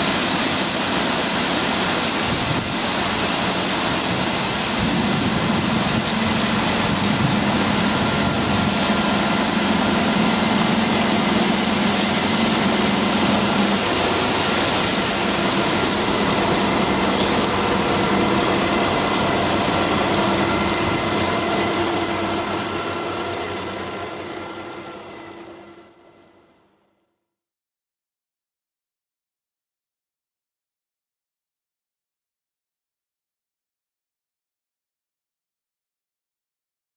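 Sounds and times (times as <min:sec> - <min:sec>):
water spray hissing: 0:00.0 - 0:22.2.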